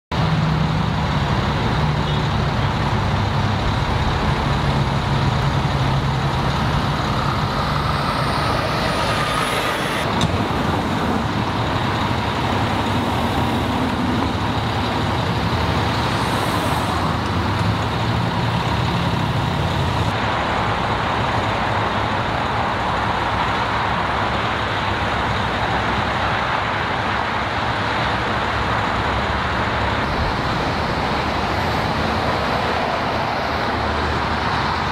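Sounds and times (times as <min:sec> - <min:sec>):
road traffic noise: 0:00.1 - 0:34.9
brief rising whine: 0:06.3 - 0:10.6.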